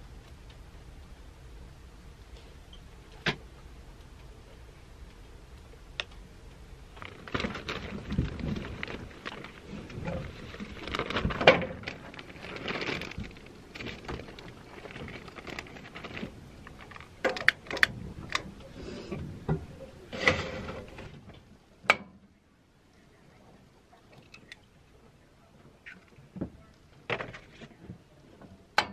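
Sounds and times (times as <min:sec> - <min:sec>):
plastic bag rustling: 0:06.9 - 0:18.3.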